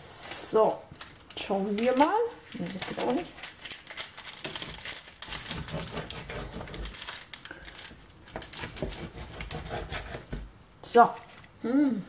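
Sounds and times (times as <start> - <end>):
knife crunching through cheese crust: 3.2 - 10.4.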